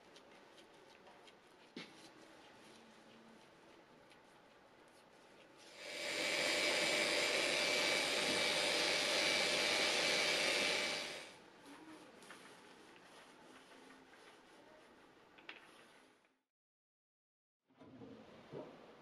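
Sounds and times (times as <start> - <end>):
orbital sander whirring: 5.7 - 11.3.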